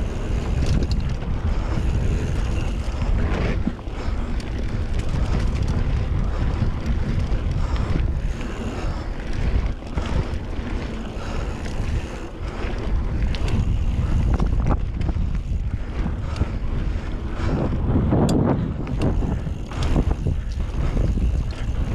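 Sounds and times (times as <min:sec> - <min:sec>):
bike clicks and rattles: 0:00.0 - 0:21.9
tyres rolling on dirt trail: 0:00.0 - 0:21.9
wind buffeting microphone: 0:00.0 - 0:21.9.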